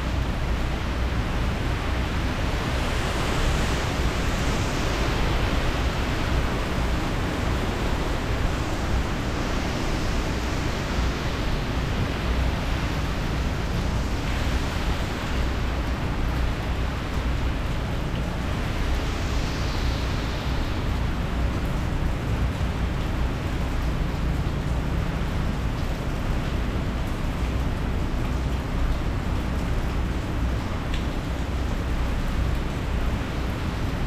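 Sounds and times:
heavy rain: 0.0s - 34.0s
wind gusting: 0.2s - 22.4s.

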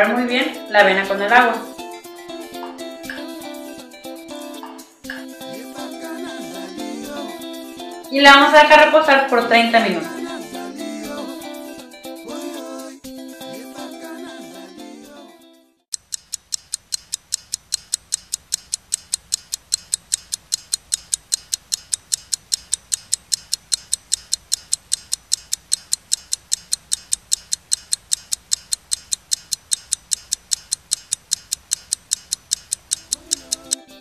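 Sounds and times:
clock ticking fast: 15.9s - 33.9s.

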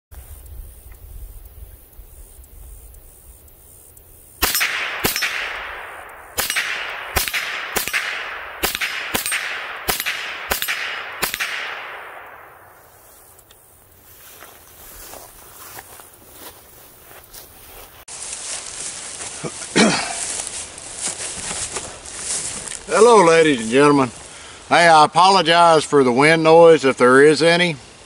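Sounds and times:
rifle shots with echo: 4.4s - 13.0s.

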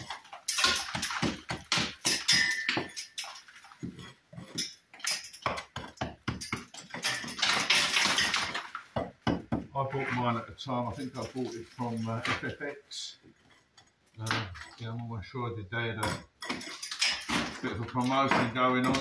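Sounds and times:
hammer chipping brick: 0.0s - 3.2s, 3.9s - 9.7s.

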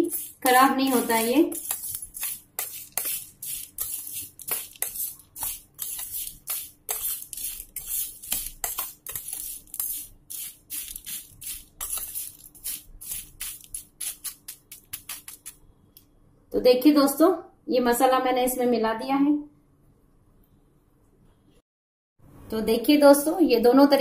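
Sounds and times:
spoon scraping a steel tray: 0.0s - 15.5s.

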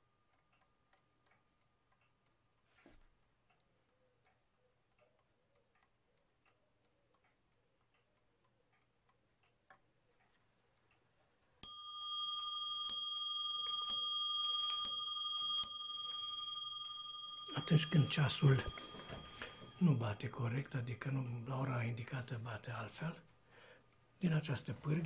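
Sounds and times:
clock ticking faintly: 0.0s - 25.0s
clock striking the hour: 11.6s - 20.8s.

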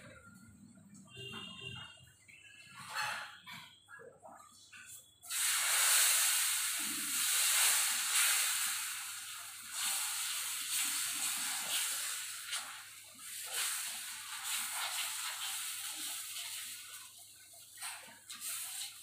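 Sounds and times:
steel bowls and utensils clinking: 1.4s - 5.4s
batter sizzling on a griddle: 5.2s - 19.0s.

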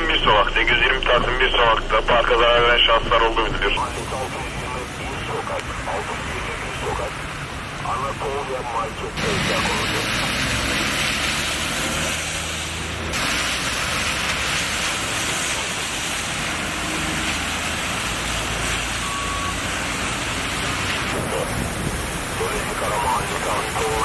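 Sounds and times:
bus engine rumbling: 0.0s - 24.0s
rain hissing: 0.0s - 24.0s
passing vehicle engines humming: 3.5s - 24.0s
tyres on standing water: 3.8s - 24.0s
brief high beep: 19.0s - 19.6s.

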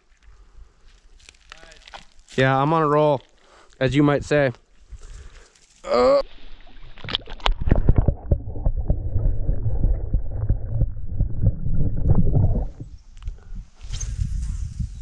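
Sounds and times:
muffled underwater sloshing: 6.4s - 12.9s
underwater knocks and clicks: 7.0s - 12.9s.

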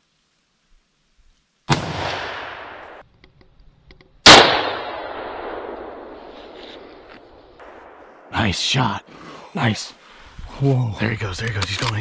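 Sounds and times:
rifle shot echoing: 1.7s - 3.0s, 4.2s - 8.4s
light clicks: 11.4s - 12.0s.

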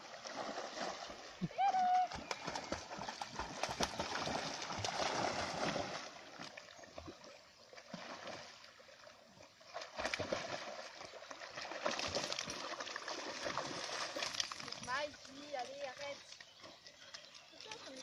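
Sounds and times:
dogs splashing through water: 0.0s - 18.0s.

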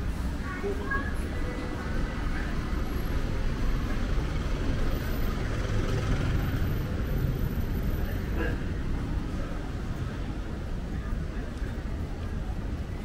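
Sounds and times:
street traffic rumble: 0.0s - 13.0s
vehicle engine: 1.6s - 10.3s.

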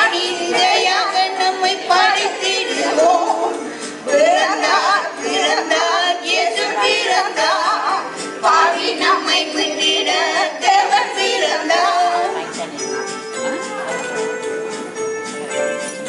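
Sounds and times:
women singing together: 0.0s - 12.4s.

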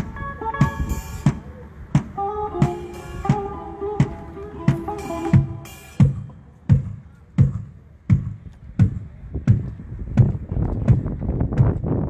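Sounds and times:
held instrument chord: 2.2s - 6.3s
kick drum beat: 4.0s - 12.0s.

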